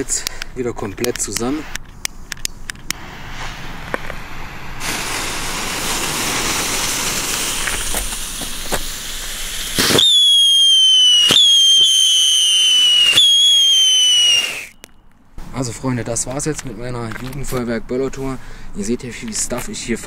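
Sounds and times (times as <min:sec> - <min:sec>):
sharp firework cracks: 0:02.4 - 0:15.0
fireworks hissing: 0:02.9 - 0:14.8
high falling firework whistle: 0:04.8 - 0:15.0.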